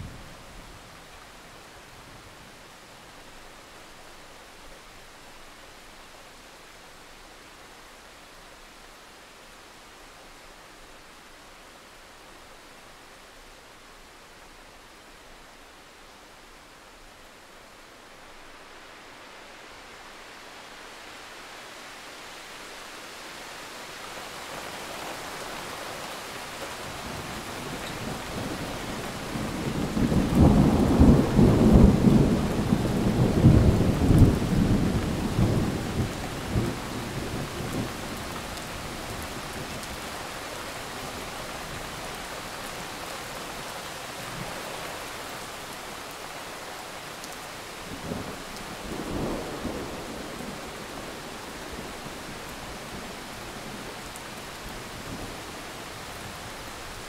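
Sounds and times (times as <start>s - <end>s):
steady rain: 0.0s - 57.0s
thunder rumbling: 28.0s - 38.0s.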